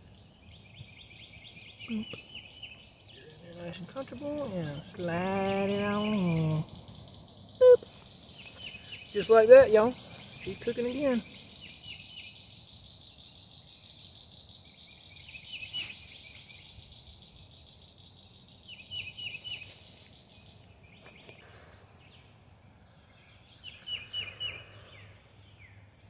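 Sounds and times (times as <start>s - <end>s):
songbird singing high notes: 4.1s - 17.7s.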